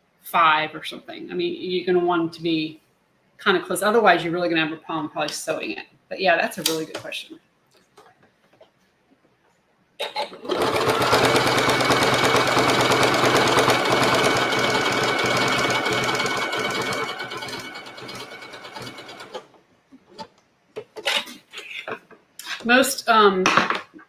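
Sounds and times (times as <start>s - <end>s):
sewing machine stitching: 10.0s - 19.5s.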